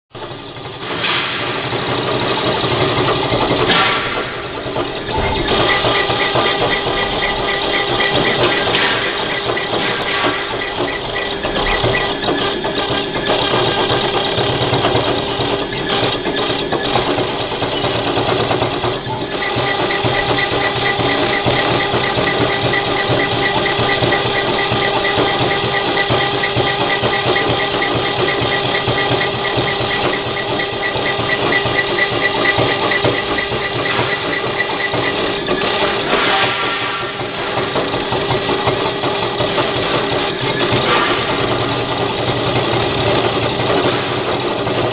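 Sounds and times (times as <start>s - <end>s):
cnc router machine whine: 4.5s - 36.6s.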